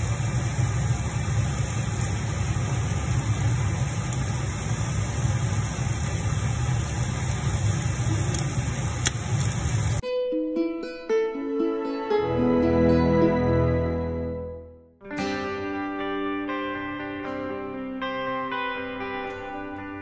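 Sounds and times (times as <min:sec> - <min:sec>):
meat sizzling on a grill: 0:00.0 - 0:10.0.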